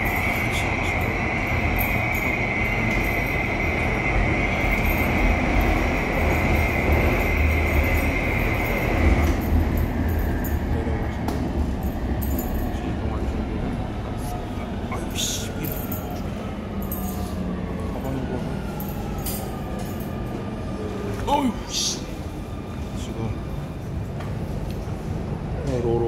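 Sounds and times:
high-pitched train squeal: 0.0 - 10.7
metro train rumbling: 0.0 - 26.0.

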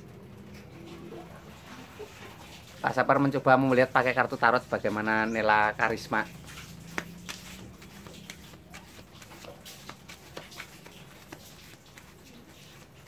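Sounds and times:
cards shuffled by hand: 6.3 - 13.0.

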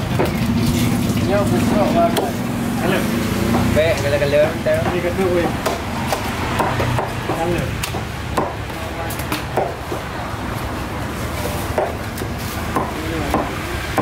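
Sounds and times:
knife chopping on wooden block: 4.7 - 10.1, 11.4 - 14.0.

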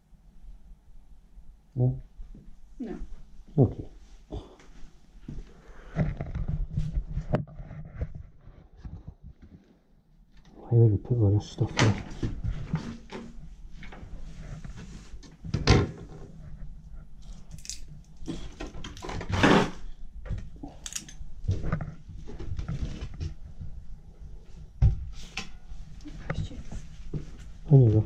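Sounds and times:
knocks and scrapes among clutter: 4.2 - 9.9, 11.6 - 17.5, 18.2 - 28.0.

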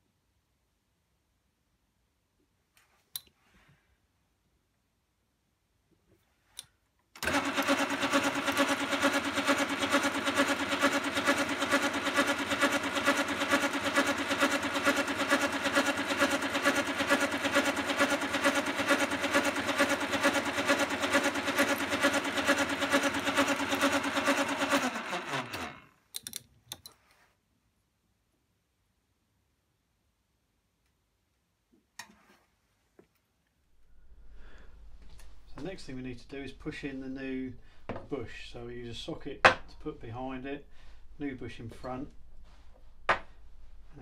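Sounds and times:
metal lathe running: 7.2 - 25.8.

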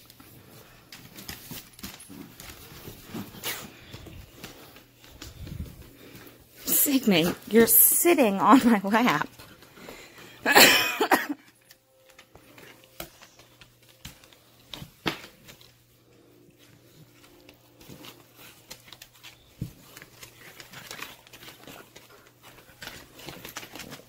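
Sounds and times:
rustling of fur: 0.0 - 10.4, 11.9 - 24.0
dog claws clicking on hardwood floor: 17.1 - 24.0.

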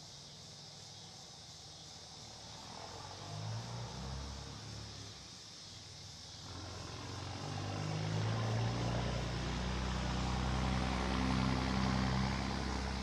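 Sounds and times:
engine droning low: 6.3 - 13.0.

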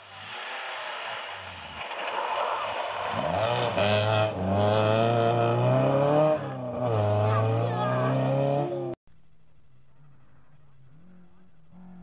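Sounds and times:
gravel spraying from tyres: 0.0 - 4.1
rally car engine accelerating: 0.1 - 9.0, 9.7 - 12.0.

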